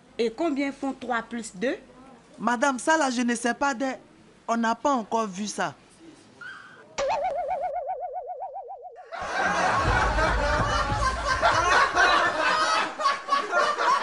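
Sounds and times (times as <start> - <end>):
warbling comic tone: 6.9 - 9.0
laugh track: 9.0 - 14.0.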